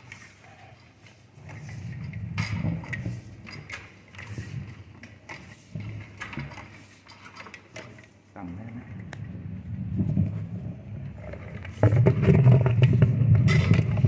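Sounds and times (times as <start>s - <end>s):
low uneven rumble: 8.4s - 14.0s
drain cable scraping and knocking: 9.1s - 14.0s.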